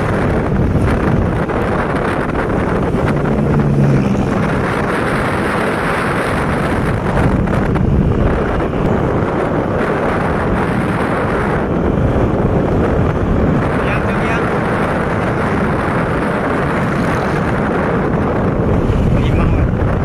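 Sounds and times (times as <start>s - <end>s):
road noise: 0.0s - 20.0s
vehicle engine: 0.0s - 20.0s
wind buffeting microphone: 0.0s - 20.0s.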